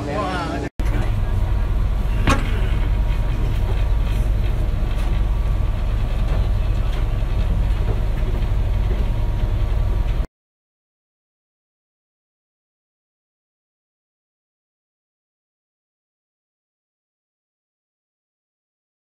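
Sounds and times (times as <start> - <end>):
boat engine rumbling: 0.0 - 10.3.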